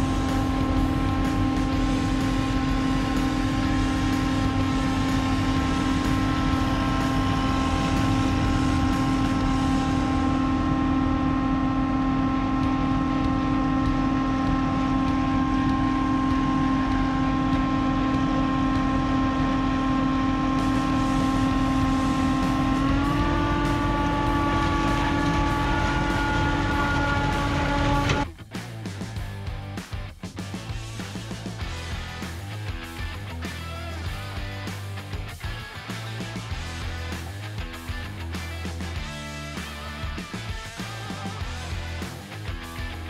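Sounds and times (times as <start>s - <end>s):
engine whining at high speed: 0.0s - 43.0s.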